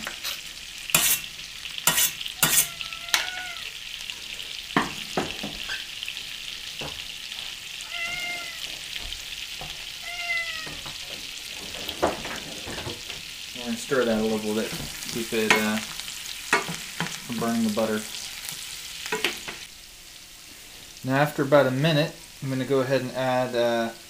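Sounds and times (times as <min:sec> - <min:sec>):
garlic sizzling in butter: 0:00.0 - 0:24.0
cat meowing: 0:02.3 - 0:03.8, 0:07.8 - 0:08.9, 0:09.9 - 0:11.0.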